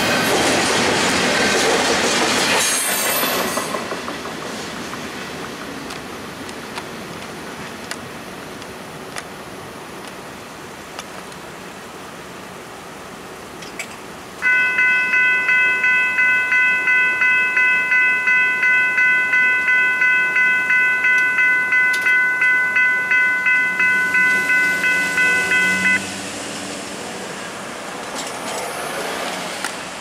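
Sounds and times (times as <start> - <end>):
crossing warning bell ringing: 14.4 - 26.1.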